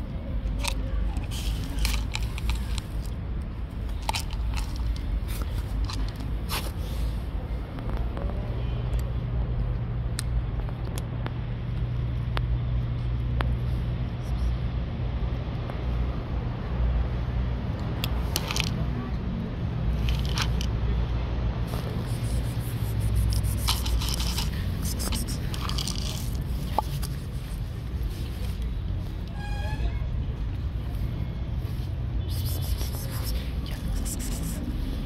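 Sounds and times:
cat crunching dry kibble: 0.5 - 3.2, 3.8 - 6.3, 20.0 - 20.7, 21.7 - 27.6, 32.4 - 34.7.

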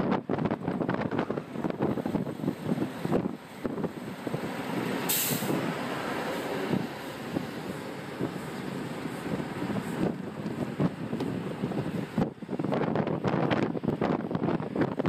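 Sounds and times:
bus passing: 0.0 - 15.0
road and wind noise: 0.0 - 15.0
air brakes hissing: 4.6 - 10.2.

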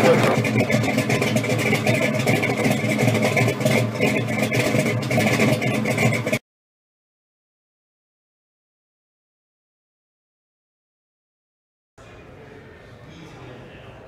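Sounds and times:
engine running steadily: 0.0 - 6.4.

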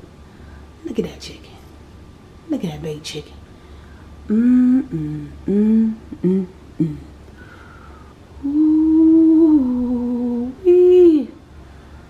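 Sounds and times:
woman humming: 4.3 - 7.2, 7.8 - 11.4.

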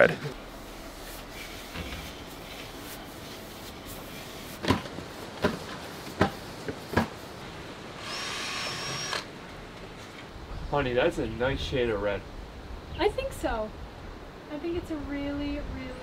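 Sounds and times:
power drill whirring: 8.0 - 9.3.

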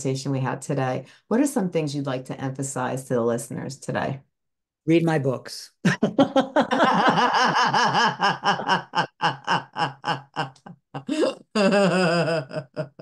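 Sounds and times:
people laughing: 5.9 - 13.0.

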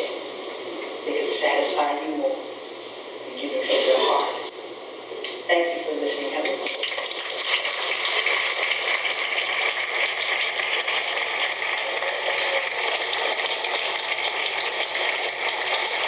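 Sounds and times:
large audience applauding: 6.8 - 16.0.

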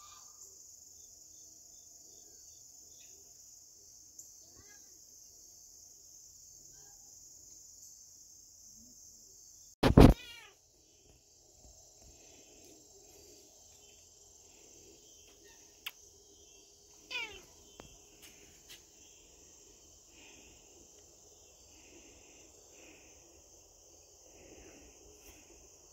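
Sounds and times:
crickets chirring: 0.0 - 25.9
cat meowing: 9.9 - 10.6, 17.1 - 17.5.

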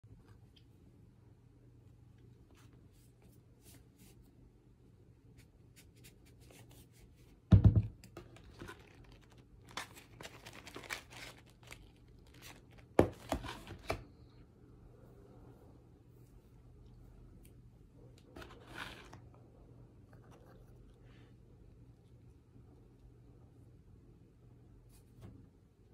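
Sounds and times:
plastic crinkling and crackling: 8.2 - 13.9.

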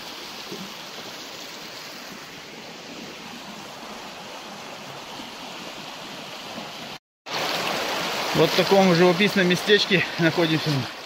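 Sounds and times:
creek water flowing over stones: 0.0 - 11.0.

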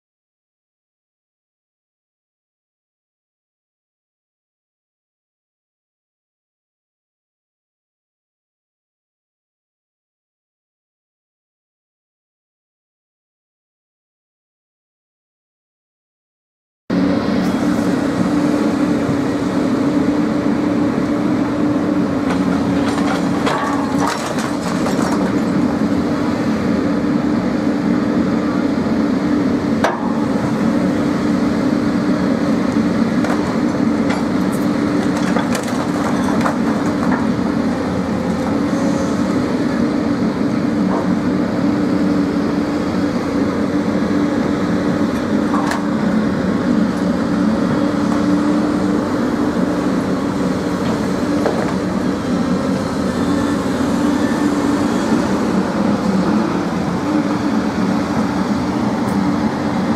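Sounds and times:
engine drone: 16.9 - 59.9.

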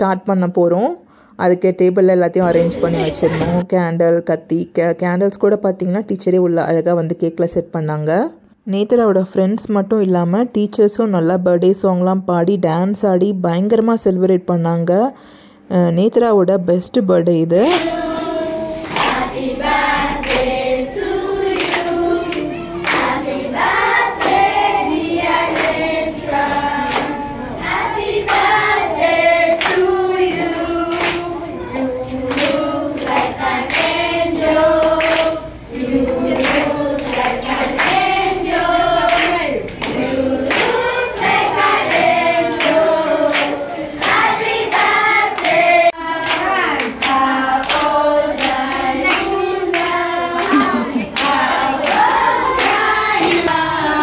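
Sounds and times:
children clapping: 17.6 - 19.5, 20.2 - 20.5, 21.5 - 27.4, 28.0 - 54.0
children singing in chorus: 17.7 - 54.0.

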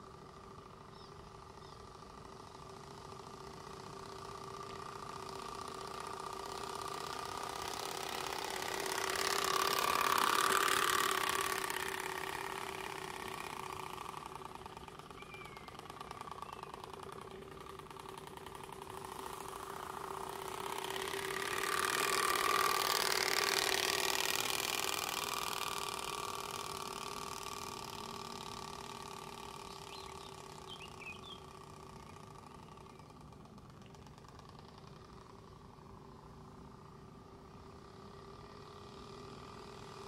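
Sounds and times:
bicycle spoke card rattling buzz: 1.6 - 36.0.

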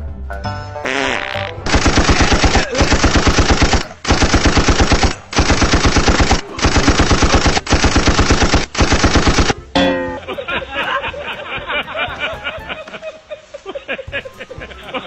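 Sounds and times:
machine-gun fire: 1.6 - 9.6.

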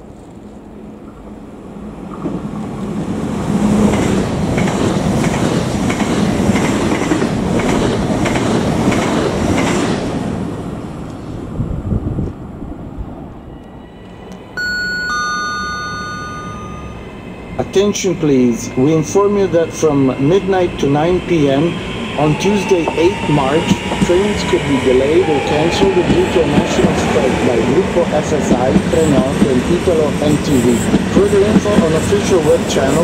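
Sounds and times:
electric train passing: 0.7 - 33.0
two-tone station chime: 14.6 - 17.1.

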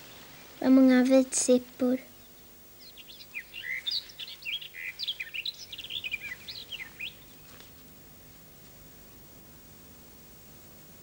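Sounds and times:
songbird chirping and whistling: 2.1 - 7.6.

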